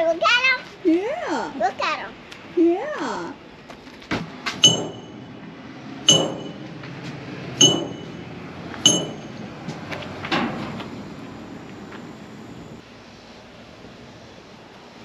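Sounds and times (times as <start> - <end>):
small metal bell dinging: 4.6 - 5.4, 6.1 - 6.7, 7.6 - 9.5.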